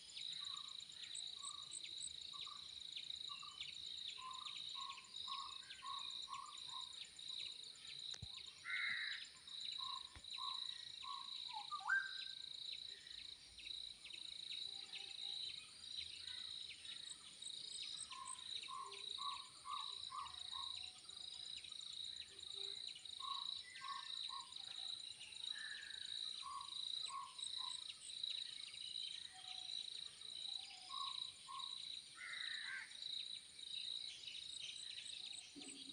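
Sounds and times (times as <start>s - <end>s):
crickets chirring: 0.0s - 35.9s
bird calling: 9.8s - 12.3s.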